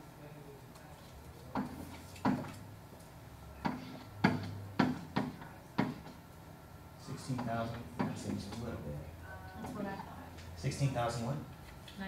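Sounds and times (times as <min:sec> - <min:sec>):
sharp taps on hard surface: 0:01.5 - 0:02.5, 0:03.6 - 0:06.2, 0:07.3 - 0:08.7.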